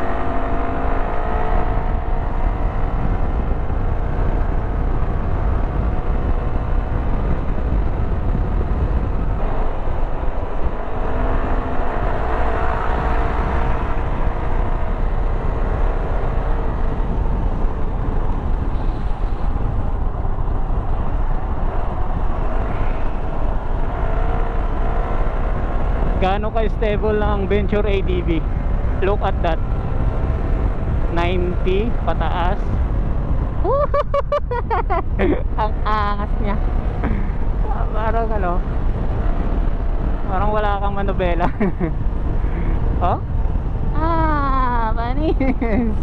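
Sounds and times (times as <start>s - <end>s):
motorcycle engine running: 0.0s - 33.7s
wind noise on microphone: 0.0s - 46.0s.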